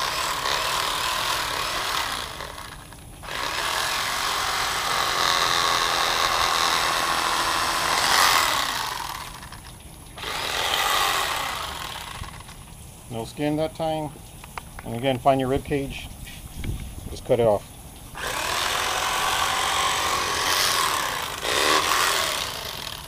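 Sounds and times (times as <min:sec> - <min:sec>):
electric fillet knife buzzing: 0:00.0 - 0:09.6, 0:10.2 - 0:12.6, 0:18.2 - 0:23.0.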